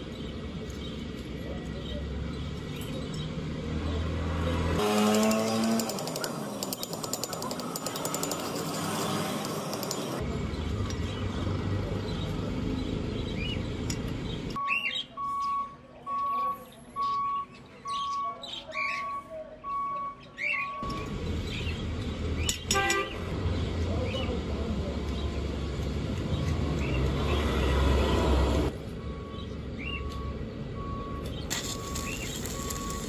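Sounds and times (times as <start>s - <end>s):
birds chirping: 0.0s - 33.0s
steady beep tone: 14.6s - 21.0s.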